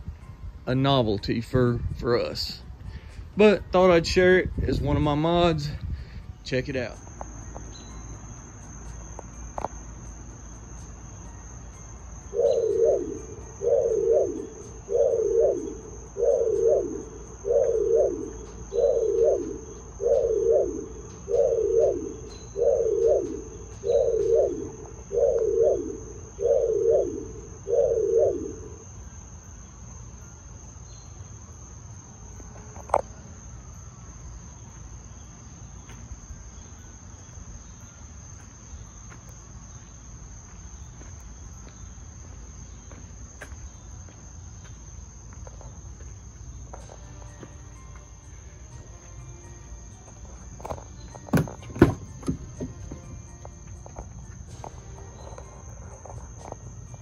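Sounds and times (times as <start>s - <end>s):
high insect trill: 0.0s - 57.0s
car door warning chime: 51.2s - 53.4s.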